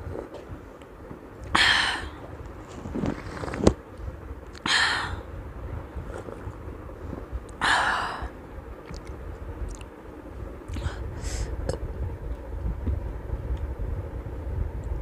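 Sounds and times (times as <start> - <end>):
faint breaths: 5.9 - 8.4, 10.7 - 11.6.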